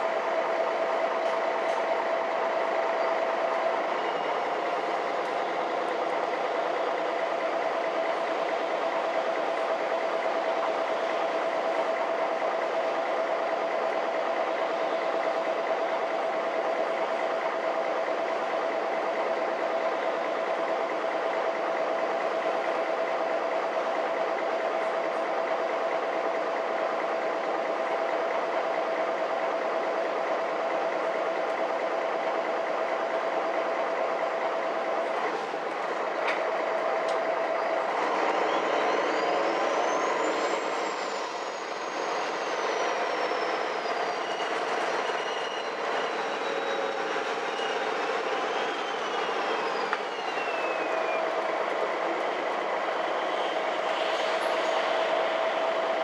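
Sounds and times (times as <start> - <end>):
bus engine running: 0.0 - 56.0
click: 35.7 - 37.2.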